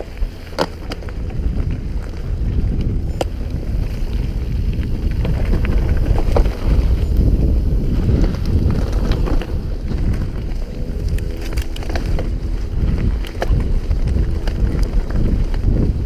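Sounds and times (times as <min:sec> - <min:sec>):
droning tone: 0:00.0 - 0:16.0
mountain bike rattling on dirt trail: 0:00.0 - 0:16.0
wind buffeting microphone: 0:00.0 - 0:16.0.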